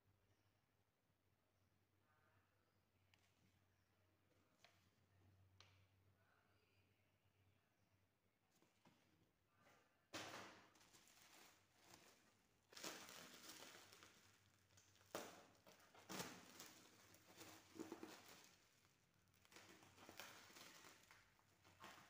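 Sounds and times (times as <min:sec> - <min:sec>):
bubble wrap crinkling: 0:10.2 - 0:22.0.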